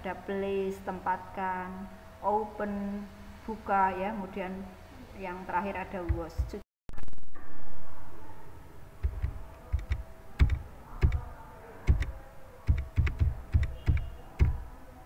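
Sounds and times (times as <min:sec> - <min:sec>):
faint steady hum: 0:00.0 - 0:15.0
keyboard typing clicks: 0:09.0 - 0:11.3, 0:11.9 - 0:12.1, 0:12.7 - 0:14.6.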